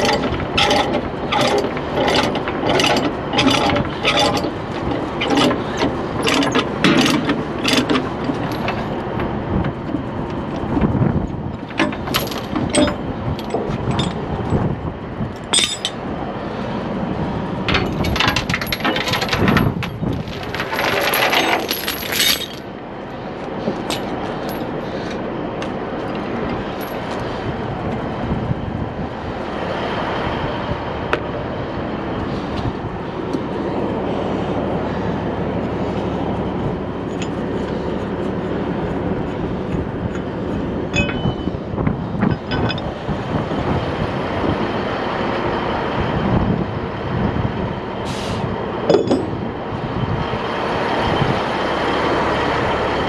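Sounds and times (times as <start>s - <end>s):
steel chains clanking: 0.0s - 9.0s, 11.6s - 14.6s, 15.4s - 16.0s, 17.7s - 22.7s, 23.8s - 24.8s, 40.9s - 41.6s, 42.3s - 43.0s, 48.9s - 49.5s
steady background noise: 0.0s - 53.0s.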